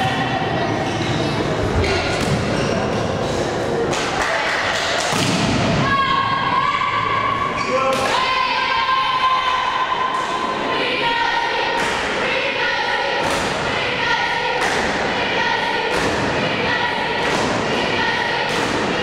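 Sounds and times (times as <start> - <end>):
crowd chanting in unison: 8.0 - 19.0.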